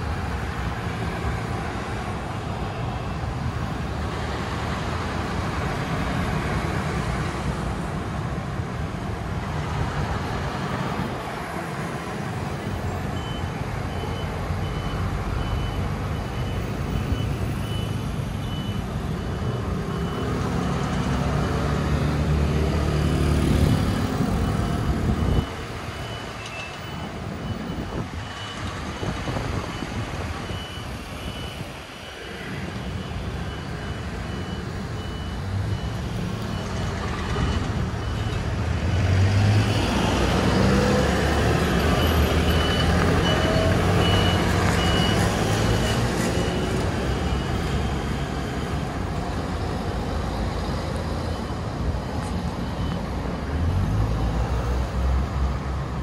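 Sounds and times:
heavy engine: 0.0 - 56.0
scooter and car engines passing: 9.1 - 26.4, 27.0 - 56.0
high electronic warning beeps: 12.6 - 21.2, 23.0 - 53.7.

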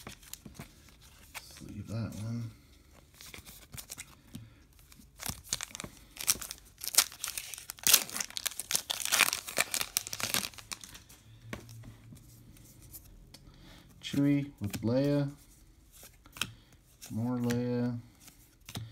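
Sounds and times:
foil wrapper crinkling and tearing: 5.1 - 11.1.

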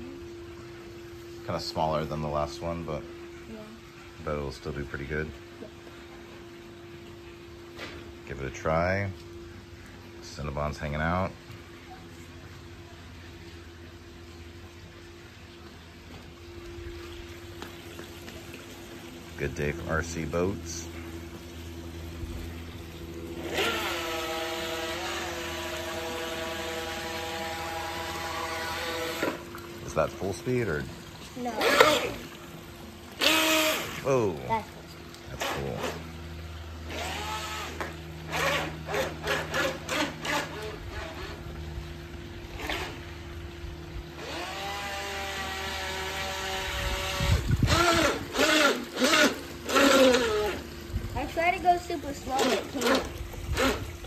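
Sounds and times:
electric motor high whine: 19.8 - 30.8, 31.4 - 32.5, 33.1 - 34.4, 36.8 - 50.9.

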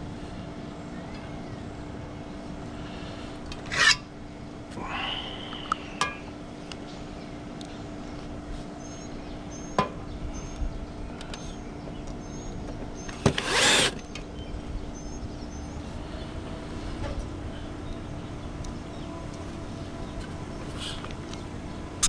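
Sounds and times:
low steady hum: 0.0 - 22.0
cordless drill running: 13.3 - 14.0.

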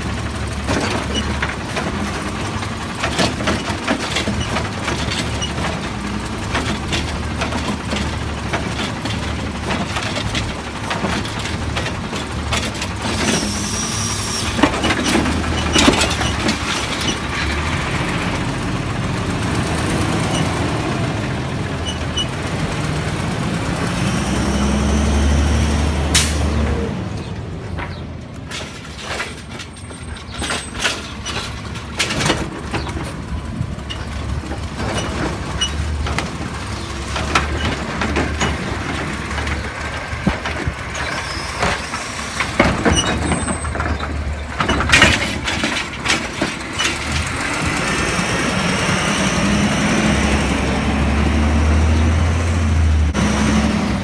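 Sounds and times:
cart clattering knocks: 0.0 - 13.7, 14.4 - 22.5, 27.2 - 50.6
truck diesel engine: 0.0 - 54.0
air brakes hissing: 13.2 - 14.9, 41.0 - 42.4.

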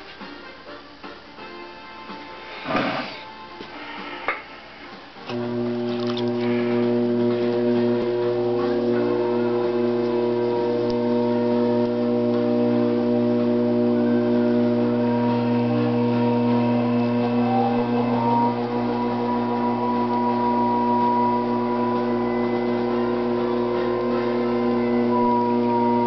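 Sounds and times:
loud steady hum of held tones: 5.3 - 26.0.

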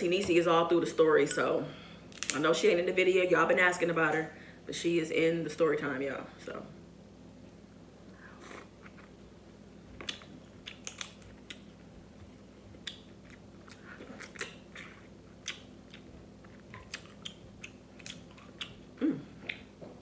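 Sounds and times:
crab shell cracking: 10.0 - 11.6
wet chewing: 10.0 - 19.7.

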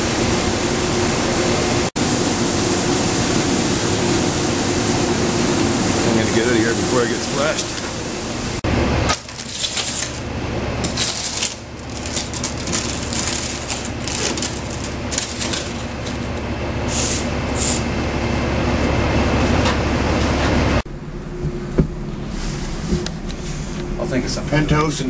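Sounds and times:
concrete mixer truck engine hum: 0.0 - 24.2
wet concrete pouring down chute: 1.4 - 17.9.

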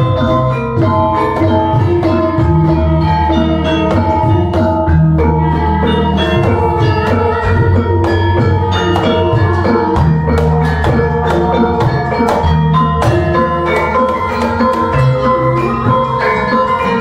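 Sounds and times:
hand drums: 0.0 - 17.0
metallophones struck in rhythm: 0.0 - 17.0.

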